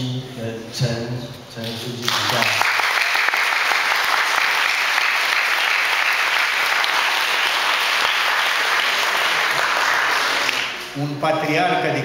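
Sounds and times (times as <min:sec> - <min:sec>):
audience applauding: 0:02.1 - 0:10.9.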